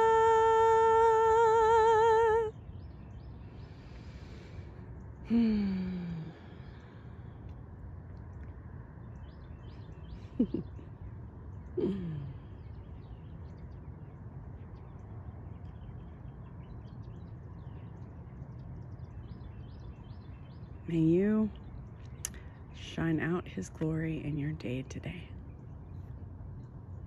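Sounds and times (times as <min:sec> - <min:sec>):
faint bird chirps: 0:00.0 - 0:27.0
low background rumble: 0:00.0 - 0:27.0
person sighing: 0:05.3 - 0:06.7, 0:11.8 - 0:12.3.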